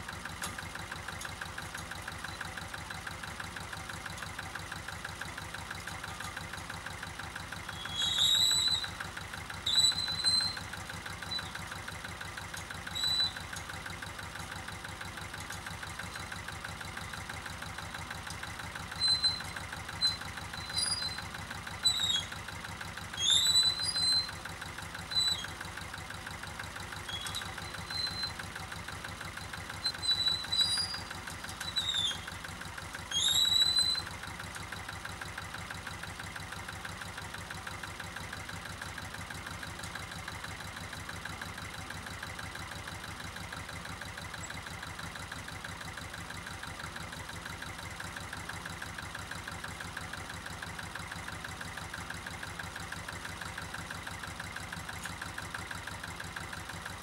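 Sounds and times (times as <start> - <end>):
tractor diesel engine running: 0.0 - 57.0
short high squeaks: 7.7 - 9.0, 9.6 - 11.6, 12.8 - 13.5, 18.9 - 22.4, 23.1 - 24.4, 25.0 - 25.6, 27.0 - 28.5, 29.8 - 32.4, 33.0 - 34.2.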